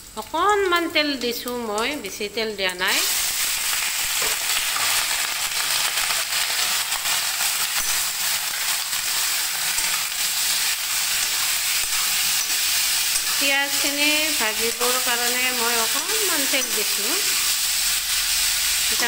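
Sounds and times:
pork sizzling in hot oil: 0.0s - 19.0s.

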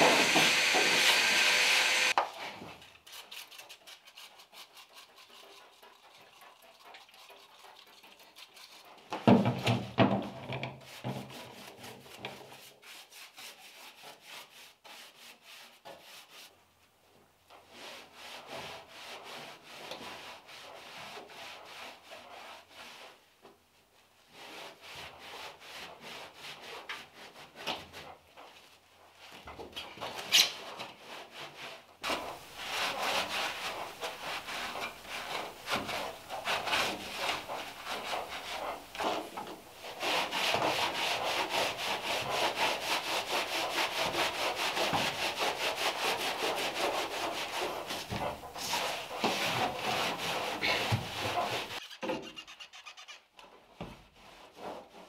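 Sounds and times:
rag scrubbing bare metal: 0.0s - 2.2s, 31.1s - 53.3s.

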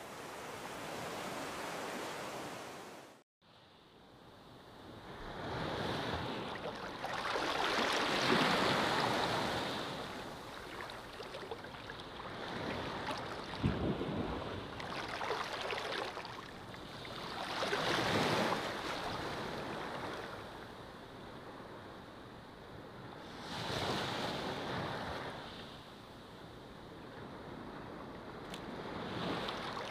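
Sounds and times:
ocean surf breaking on shore: 0.0s - 3.2s, 5.1s - 20.4s.

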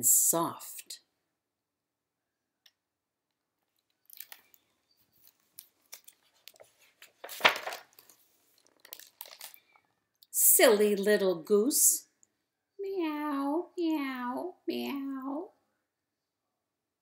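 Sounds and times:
book pages turning: 3.6s - 9.8s
paper rustling and crinkling: 3.8s - 9.8s.

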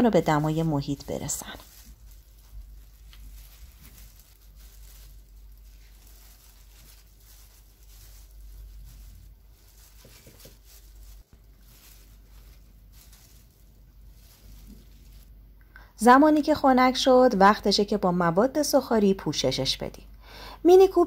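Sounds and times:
soft handling noises: 0.0s - 15.6s
low steady hum: 0.0s - 18.8s
plastic glove crinkling: 0.0s - 19.6s.

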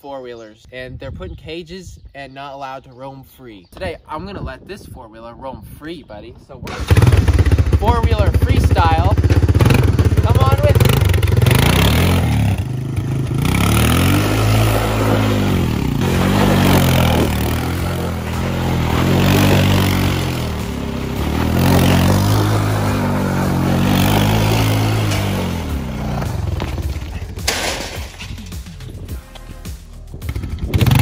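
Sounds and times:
atv engine revving: 6.7s - 27.5s, 30.2s - 31.0s
sudden clatter: 24.4s - 28.9s.

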